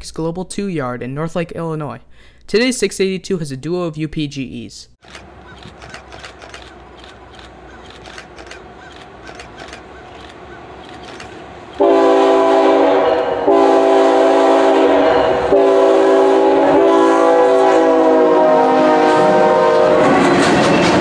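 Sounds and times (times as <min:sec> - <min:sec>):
diesel locomotive rumble: 0:05.0 - 0:17.5
locomotive air horn blasts: 0:11.8 - 0:20.2.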